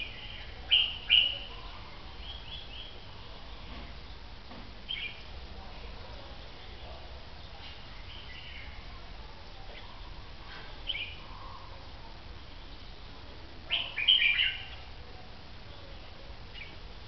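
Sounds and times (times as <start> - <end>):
bird calling clear notes: 13.7 - 14.9.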